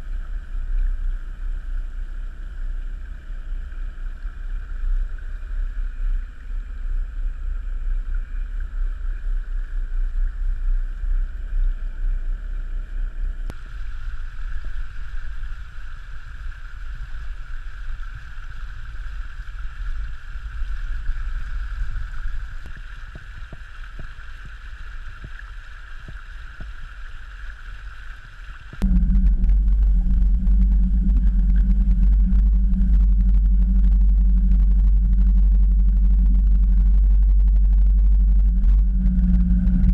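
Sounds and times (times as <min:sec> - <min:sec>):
steady high hum: 0:00.0 - 0:39.9
steady low hum: 0:00.0 - 0:39.9
wind rumble on microphone: 0:00.0 - 0:39.9.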